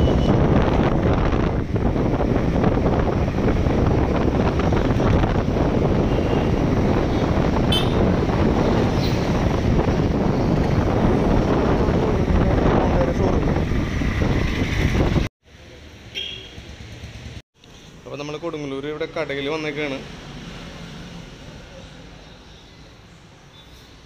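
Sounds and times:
wind on microphone: 0.0s - 15.3s
motorbike engine and road noise: 0.0s - 17.9s, 18.6s - 24.0s.

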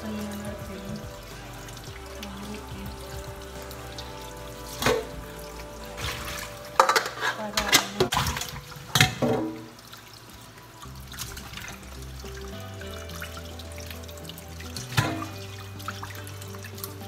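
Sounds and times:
tap water running into sink: 0.0s - 17.0s
water splashing: 0.0s - 17.0s
metal bowl clattering: 3.9s - 9.8s, 14.7s - 17.0s.

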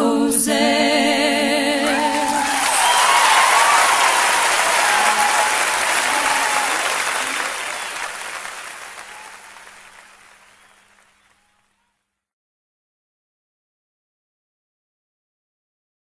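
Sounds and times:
audience applauding: 1.8s - 11.7s.

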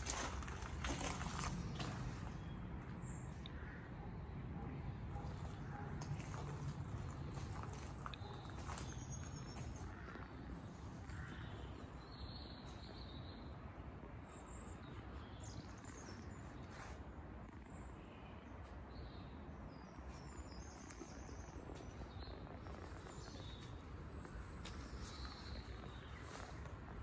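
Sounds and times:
small birds chirping: 18.6s - 27.0s.

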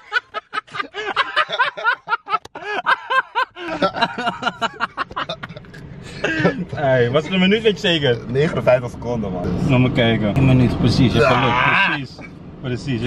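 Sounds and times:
men laughing: 0.0s - 7.1s.

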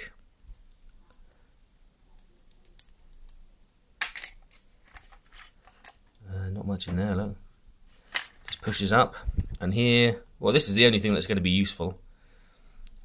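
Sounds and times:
small plastic and metal parts clicking: 2.2s - 3.4s.

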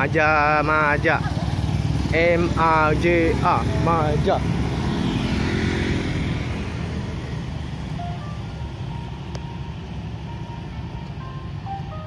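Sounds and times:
motorcycle traffic rumble: 0.0s - 12.0s.

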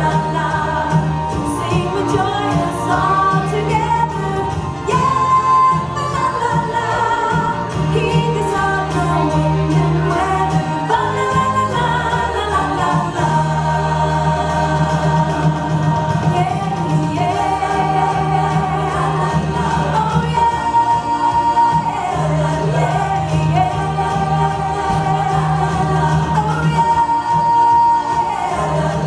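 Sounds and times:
bass line: 0.0s - 29.0s
percussion beat: 0.0s - 29.0s
voices singing with band: 0.0s - 29.0s.

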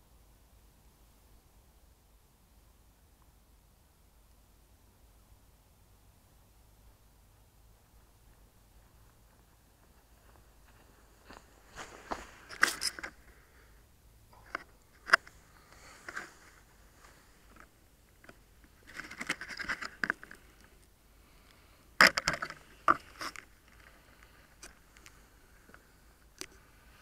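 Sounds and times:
grass rustling against camera: 6.0s - 27.0s.

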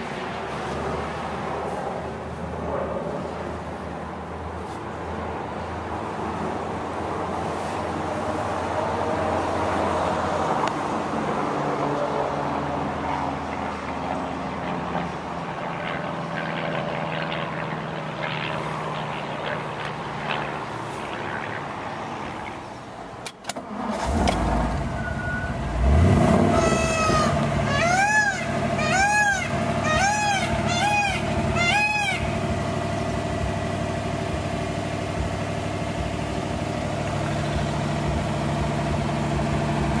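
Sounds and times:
car engine idling: 22.2s - 40.0s.

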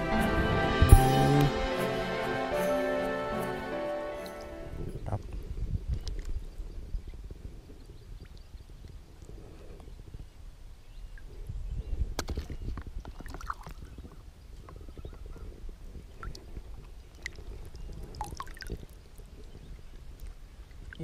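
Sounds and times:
low rumble: 0.0s - 2.6s
water splashing and dripping: 13.0s - 13.9s, 16.1s - 19.3s.

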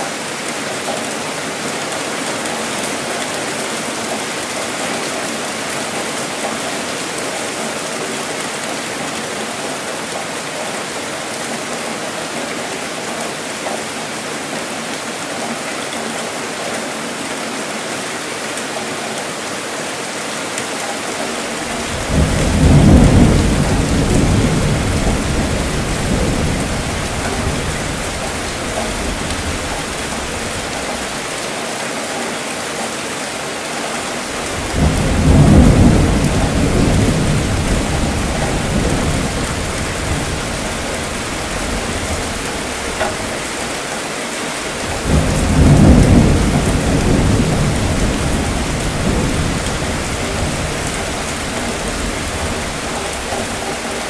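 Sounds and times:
steady rainfall: 0.0s - 54.0s
rumbling thunder: 21.6s - 31.2s, 34.3s - 43.8s, 44.7s - 54.0s.

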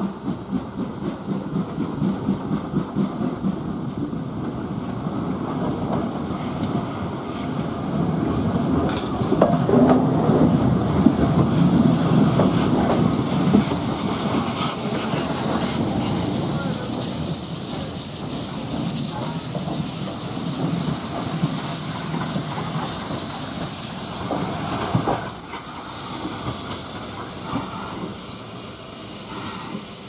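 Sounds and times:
steam locomotive beats: 0.0s - 30.0s
wheels clattering on rail: 0.1s - 30.0s
steam hissing: 10.4s - 30.0s.

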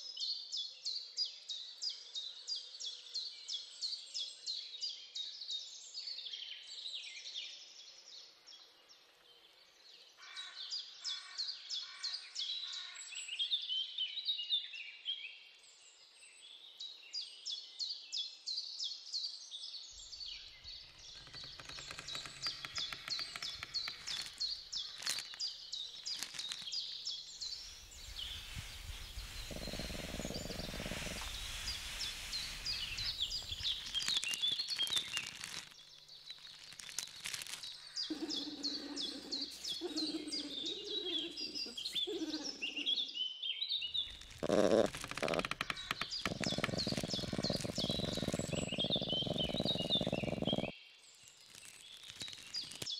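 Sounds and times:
small birds chirping: 19.9s - 52.9s
rustling noise: 20.7s - 39.8s, 44.0s - 50.1s, 51.2s - 52.9s.

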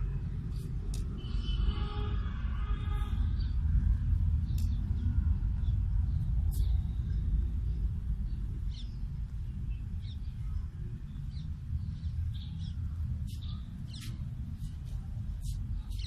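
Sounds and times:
steady low rumble: 0.0s - 16.0s
small birds chirping: 4.4s - 16.0s.

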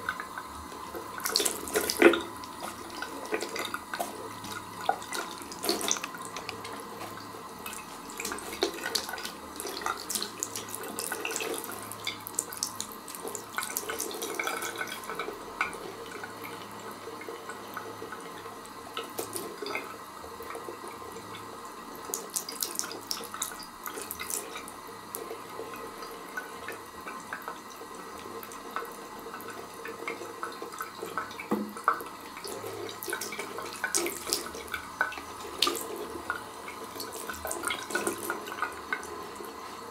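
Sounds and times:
tap water running into bowl: 0.0s - 39.9s
water splashing: 1.1s - 14.9s.

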